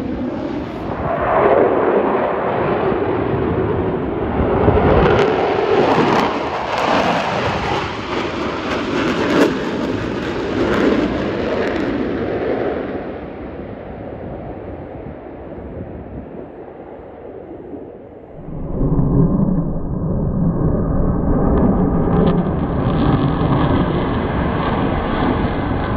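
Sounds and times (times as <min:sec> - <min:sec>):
loud jet engine noise: 0:00.0 - 0:15.7, 0:16.4 - 0:25.9.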